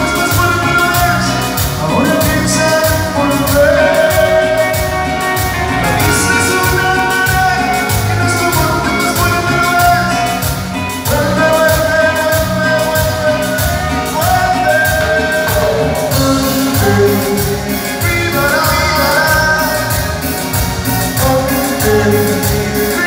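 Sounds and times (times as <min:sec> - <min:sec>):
man singing long notes: 0:00.0 - 0:20.3, 0:20.9 - 0:23.0
latin band music: 0:00.0 - 0:23.0.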